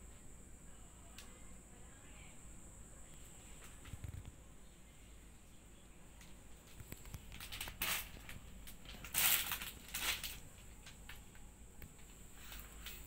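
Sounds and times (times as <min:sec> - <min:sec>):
plastic wrapping crinkling: 0:06.6 - 0:11.3.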